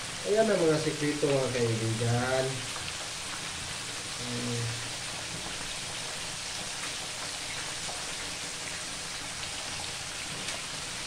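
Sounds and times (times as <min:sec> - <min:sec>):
chicken sizzling in hot oil: 0:00.0 - 0:11.0.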